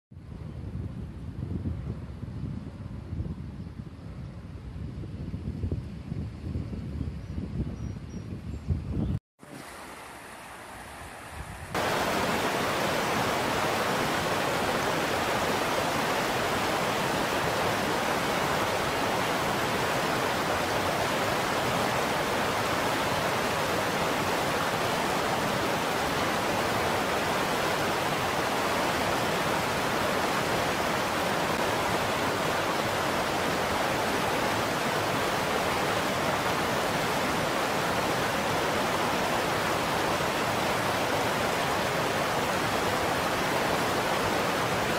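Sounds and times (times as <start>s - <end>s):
river water rushing over rocks: 9.4s - 11.2s, 11.8s - 44.9s.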